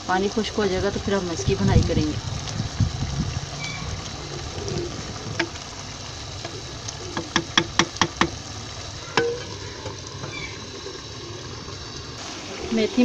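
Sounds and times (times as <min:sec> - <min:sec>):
curry sizzling: 0:00.0 - 0:13.0
spatula knocking against clay pot: 0:07.1 - 0:08.4.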